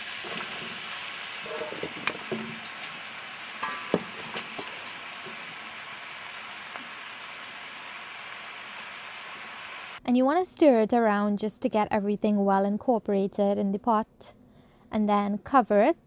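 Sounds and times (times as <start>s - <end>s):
hot oil sizzling in a pot: 0.0s - 10.0s
vegetable pieces knocking into pot: 0.2s - 5.8s.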